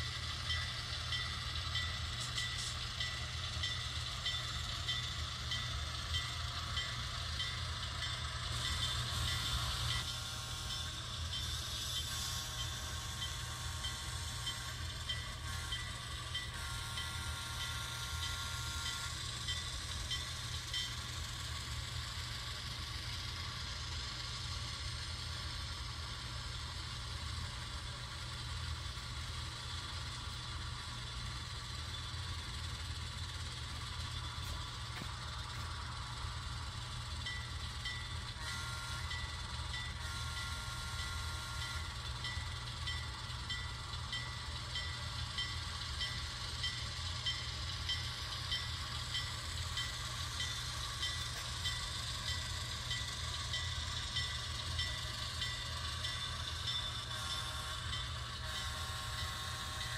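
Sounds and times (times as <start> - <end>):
locomotive horn blowing: 38.4 - 39.2, 40.0 - 41.8.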